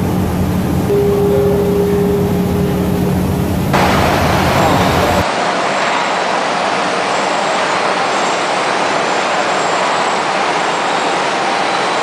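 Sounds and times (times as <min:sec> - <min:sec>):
machinery rushing noise: 0:00.0 - 0:12.0.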